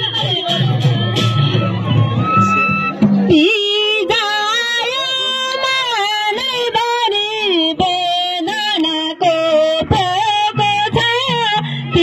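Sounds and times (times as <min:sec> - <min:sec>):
woman singing: 0:00.0 - 0:01.1, 0:03.3 - 0:12.0
hand drum beats: 0:00.0 - 0:04.2.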